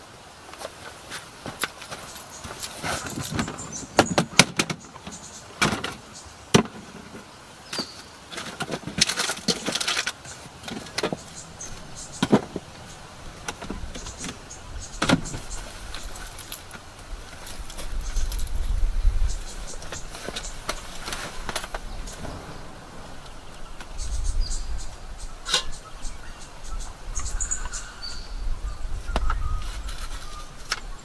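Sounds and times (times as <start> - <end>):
rustling: 0.4 - 25.9, 29.0 - 31.0
camp gear clicking and clinking: 0.5 - 22.4, 25.4 - 25.9, 29.1 - 31.0.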